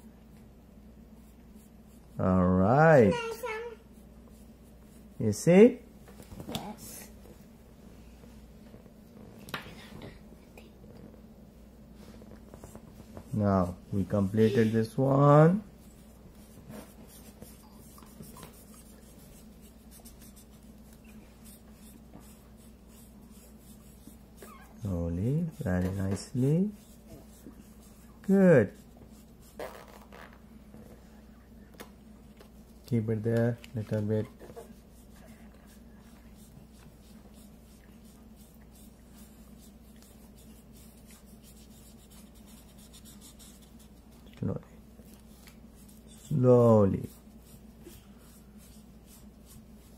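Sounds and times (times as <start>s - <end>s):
markers scratching on paper: 12.4s - 30.4s, 33.8s - 44.2s, 45.1s - 49.9s.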